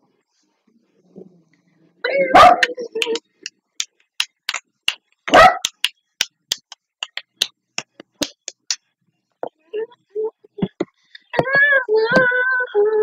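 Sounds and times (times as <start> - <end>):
sharp hand claps: 2.6 - 8.8.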